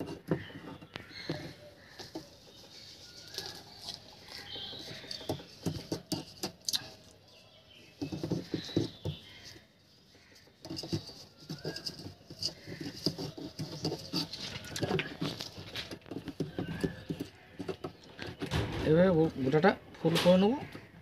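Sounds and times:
birds chirping: 0.0s - 21.0s
potting mix rustling and crackling: 0.0s - 21.0s.

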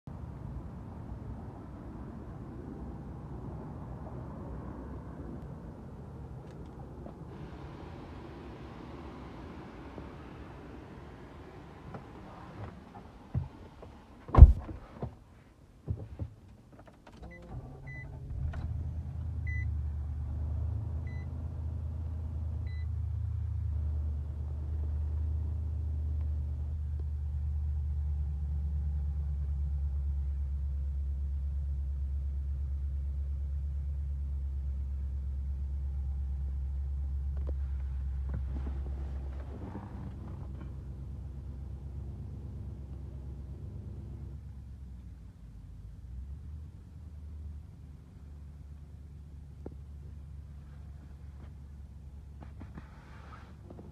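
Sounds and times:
truck low hum: 0.1s - 15.1s, 16.4s - 53.9s
sharp thump: 14.3s - 14.8s.

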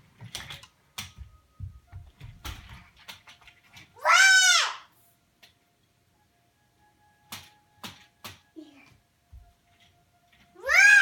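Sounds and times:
child squealing: 4.0s - 4.9s, 10.6s - 11.0s.

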